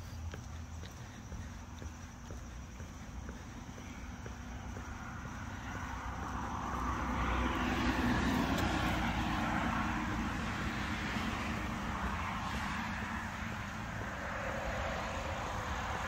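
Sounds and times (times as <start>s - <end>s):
passing vehicle engine: 0.0s - 16.0s.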